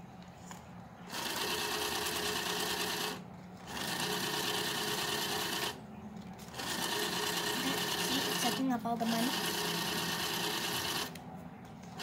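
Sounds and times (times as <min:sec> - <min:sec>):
small motor whirring: 0:01.1 - 0:05.8, 0:06.5 - 0:11.2.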